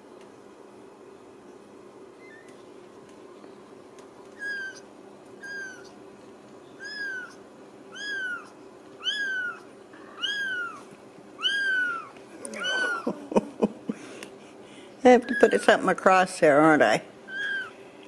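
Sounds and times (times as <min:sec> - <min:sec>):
kitten mewing: 0:04.4 - 0:04.8, 0:05.4 - 0:06.0, 0:06.8 - 0:13.4, 0:17.3 - 0:17.8.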